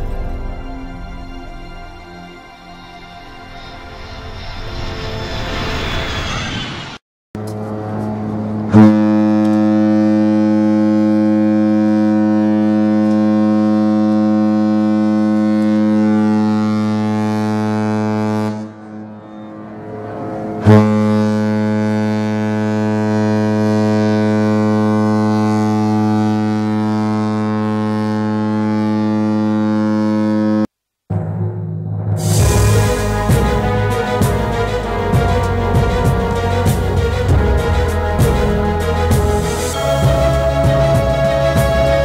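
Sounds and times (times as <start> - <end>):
ship's horn blasts: 7.4 - 30.7, 32.2 - 42.0.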